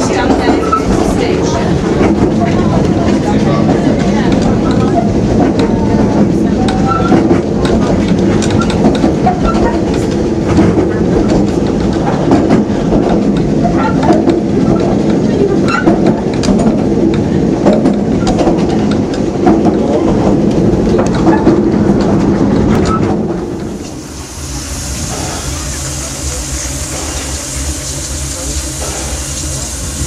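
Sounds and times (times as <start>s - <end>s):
wheels and coach rattling: 0.0s - 24.0s
railway carriage rumble: 0.0s - 30.0s.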